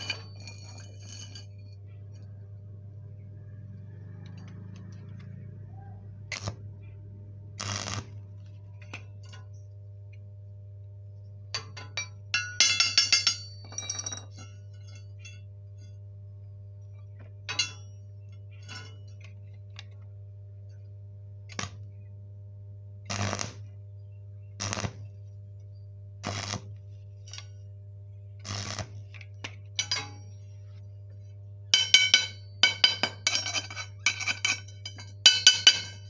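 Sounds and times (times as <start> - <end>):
welding machine hum: 0.0 - 10.4, 21.4 - 22.0, 23.0 - 36.0
welding arc crackle: 6.2 - 6.8, 7.4 - 8.5, 21.5 - 21.9, 23.0 - 23.8, 24.6 - 25.4, 26.2 - 27.6, 28.4 - 30.6
chipping hammer tapping metal: 17.5 - 17.9, 28.5 - 30.5, 31.7 - 36.0.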